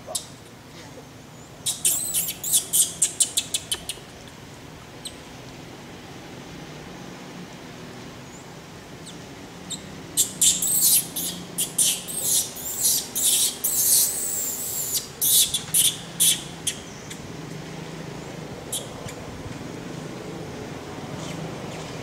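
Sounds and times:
monkey squealing: 1.7s - 4.0s, 9.7s - 16.8s.

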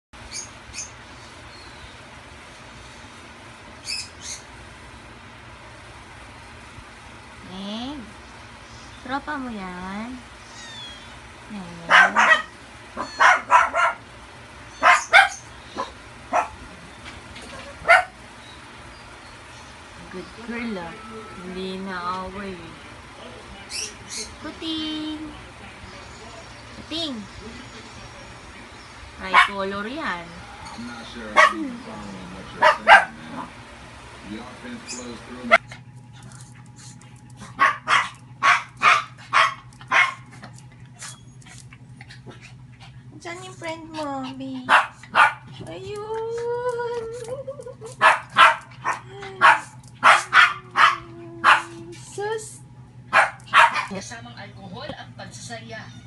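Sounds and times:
dog barking: 11.9s - 14.1s, 14.8s - 16.6s, 17.6s - 18.2s, 29.3s - 29.6s, 31.3s - 31.7s, 32.6s - 33.6s, 37.4s - 40.3s, 44.7s - 45.5s, 48.0s - 51.7s, 53.1s - 54.0s.

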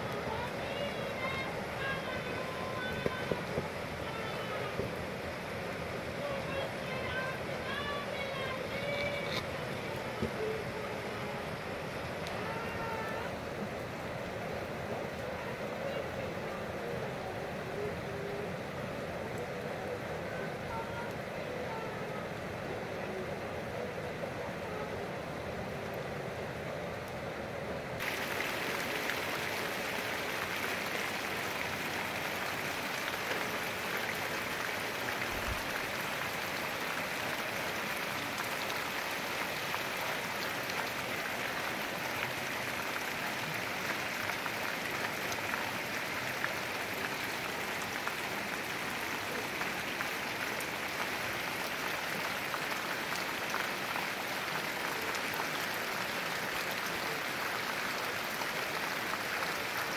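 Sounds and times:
individual raindrops ticking: 0.0s - 13.4s
heavy rain falling: 0.0s - 59.9s.

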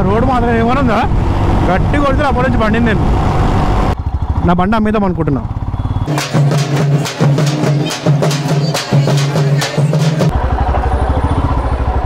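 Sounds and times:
motorcycle engine idling: 4.0s - 6.7s, 10.2s - 12.0s
frame drums beaten: 6.0s - 10.3s.

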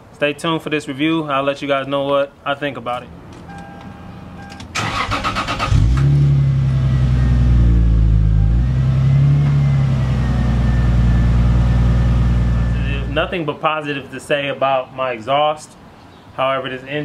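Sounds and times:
car engine starting and idling: 4.3s - 13.3s.

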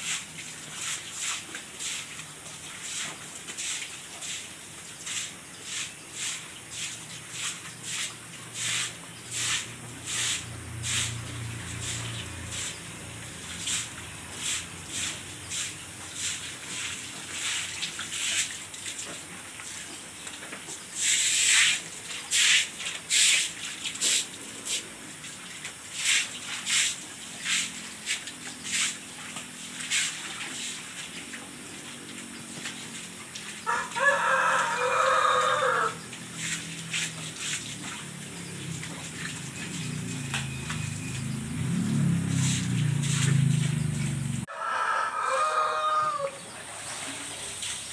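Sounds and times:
rooster crowing: 33.6s - 36.1s, 44.5s - 46.6s.

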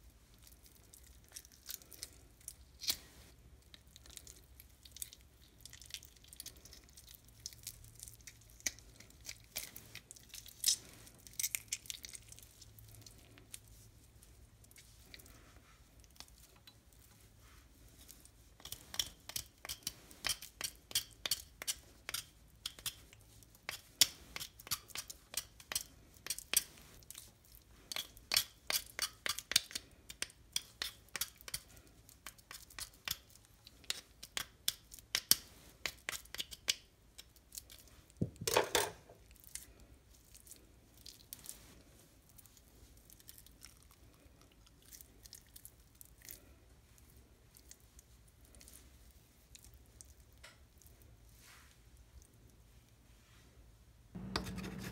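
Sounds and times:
knife cutting raw chicken: 54.2s - 54.9s.

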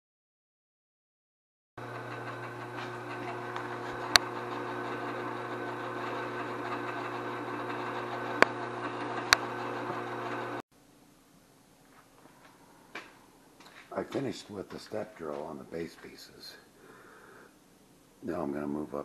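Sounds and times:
drill press cutting steel: 1.8s - 10.6s.

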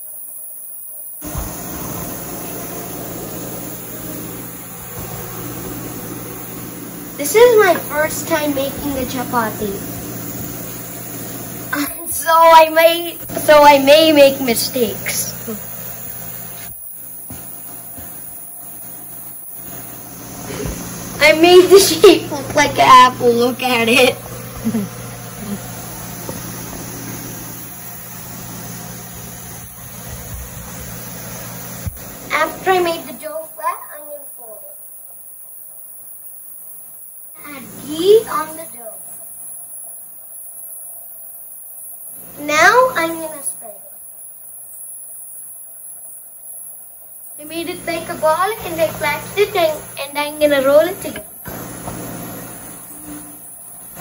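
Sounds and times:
even hiss: 0.0s - 54.0s
kitchen fan humming: 1.2s - 54.0s.

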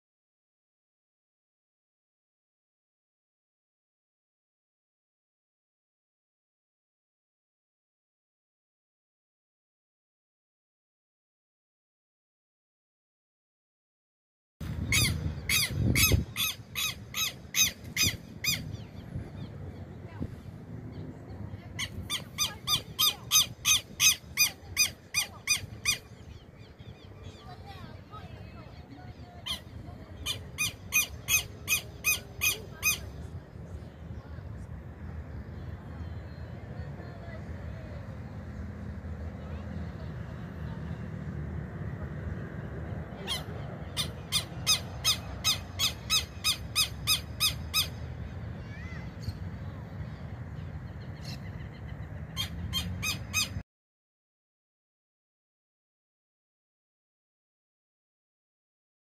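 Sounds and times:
bird calling sharp notes: 14.8s - 18.8s, 21.8s - 26.4s, 43.2s - 48.0s.

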